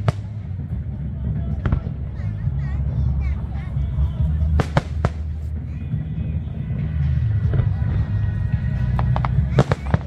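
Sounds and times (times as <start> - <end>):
faint firework crackle: 0.0 - 0.9, 4.5 - 5.6, 8.8 - 10.0
music with heavy low rumble: 0.0 - 10.0.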